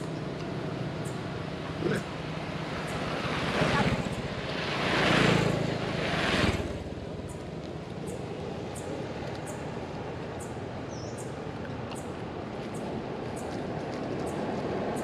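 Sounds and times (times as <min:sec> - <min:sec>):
motorbike engine passing: 0:00.0 - 0:07.5.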